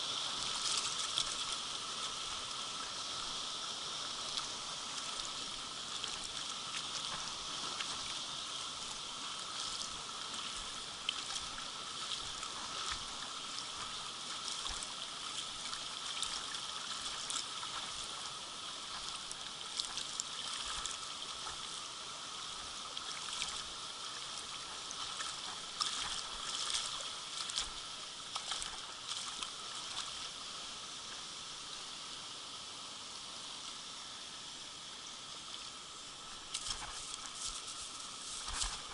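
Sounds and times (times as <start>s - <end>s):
stream flowing over stones: 0.0s - 38.9s
small splashes and clicks: 0.4s - 1.6s, 5.9s - 8.1s, 9.6s - 18.2s, 18.9s - 21.7s, 22.9s - 23.7s, 24.4s - 30.3s, 36.3s - 38.9s.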